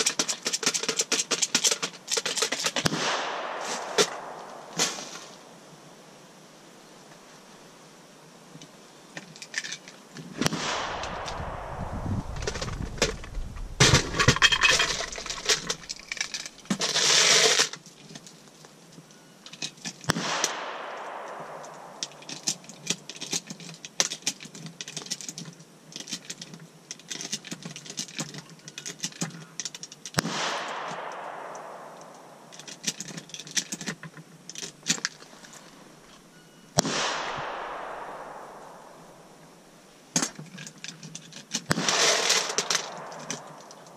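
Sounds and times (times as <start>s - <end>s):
pistol shots: 2.8s - 5.5s, 10.4s - 16.2s, 20.1s - 22.8s, 30.2s - 32.8s, 36.8s - 39.6s, 41.7s - 43.9s
loud gunshots with echo: 2.8s - 5.6s, 10.4s - 16.0s, 20.1s - 22.7s, 30.2s - 32.6s, 36.8s - 39.6s, 41.7s - 43.9s.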